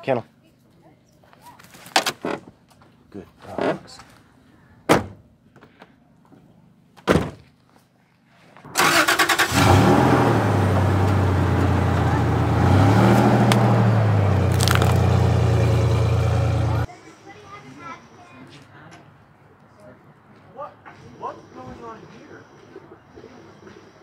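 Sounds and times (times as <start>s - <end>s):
truck engine starting and idling: 8.7s - 16.9s.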